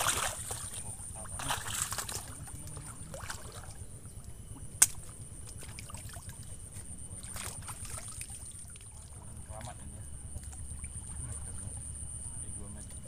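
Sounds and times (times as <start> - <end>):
high-pitched whine: 0.0 - 13.0
sharp click: 4.8 - 5.2.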